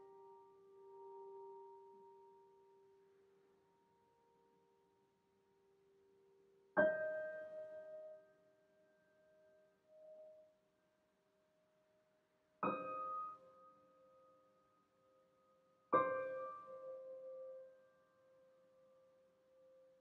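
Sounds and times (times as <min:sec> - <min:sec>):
slow piano chords: 0:06.8 - 0:08.8, 0:12.6 - 0:13.7, 0:16.0 - 0:17.9.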